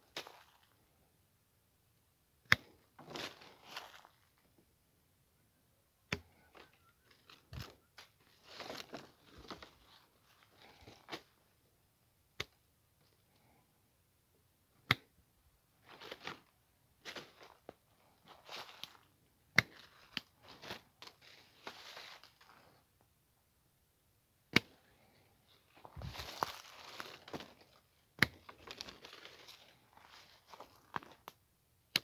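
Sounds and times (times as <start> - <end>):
branches rustling: 0.0 - 1.1, 2.6 - 4.5, 6.3 - 11.5, 15.8 - 22.9, 24.5 - 31.4.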